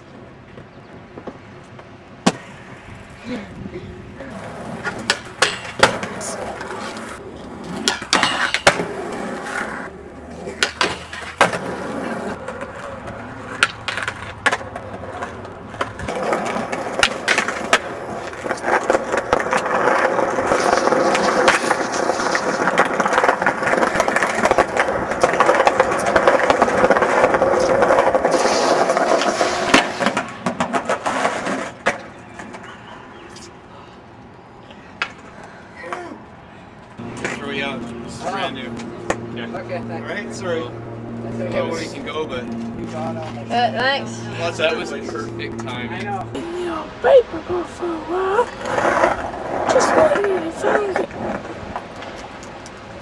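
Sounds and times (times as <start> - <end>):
skateboard wheels rolling on concrete: 0.0 - 53.0
skateboard cracks and slaps: 2.2 - 2.6, 4.8 - 32.7.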